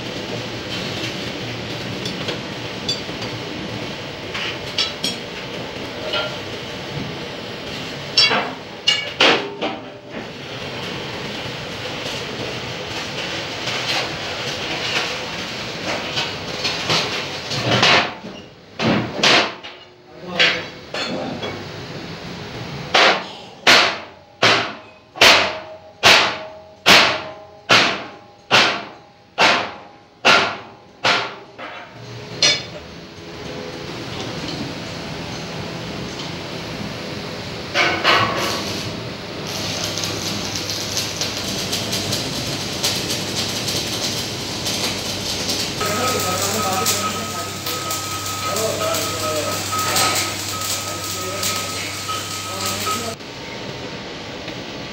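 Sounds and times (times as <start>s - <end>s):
plate-rolling machine rumbling: 0.0s - 19.2s, 31.7s - 54.9s
loud metal clangs: 8.1s - 10.0s.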